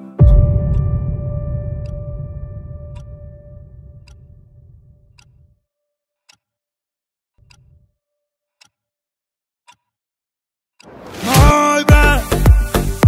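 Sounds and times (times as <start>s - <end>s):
low song notes: 0.0s - 5.4s
faint clock-like ticking: 5.1s - 5.4s, 7.4s - 7.8s.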